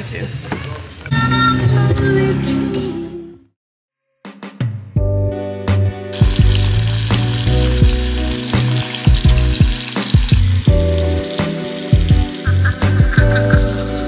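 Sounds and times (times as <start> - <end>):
music with beat and bass: 5.0 - 14.0.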